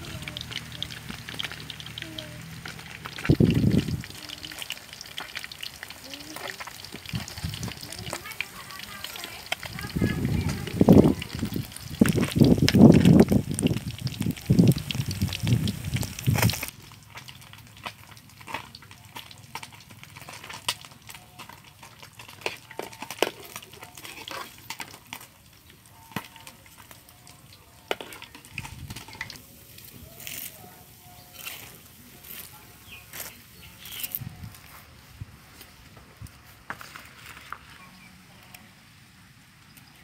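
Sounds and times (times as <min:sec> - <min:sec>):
fish sizzling in hot oil: 0:00.0 - 0:34.2
metal ladle scraping: 0:22.3 - 0:25.3, 0:27.8 - 0:34.3.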